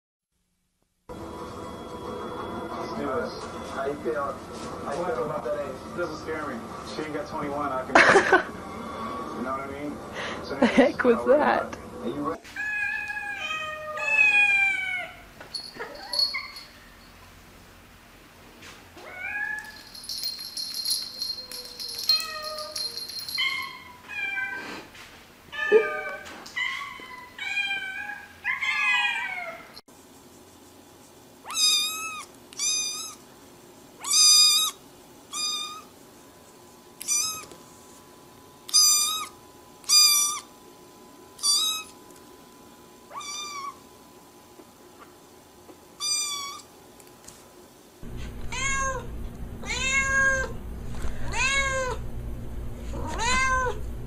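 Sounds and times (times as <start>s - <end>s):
cats meowing: 12.5s - 15.2s, 25.6s - 29.7s, 37.0s - 37.6s, 43.1s - 43.8s, 48.4s - 50.5s, 51.3s - 52.0s, 53.0s - 53.8s
low steady hum: 48.0s - 54.0s
kitten high-pitched mewing: 53.0s - 53.8s.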